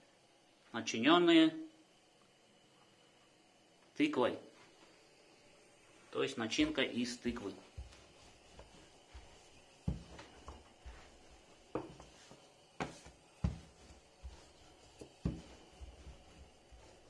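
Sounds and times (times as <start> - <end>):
rolling pin rolling dough: 6.5 - 17.0
dull knocks on countertop: 11.7 - 12.1.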